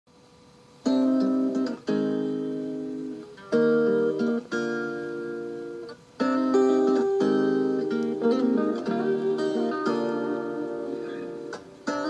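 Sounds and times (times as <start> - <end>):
acoustic guitar chords ringing: 0.7 - 12.0
cassette tape playback: 0.7 - 12.0.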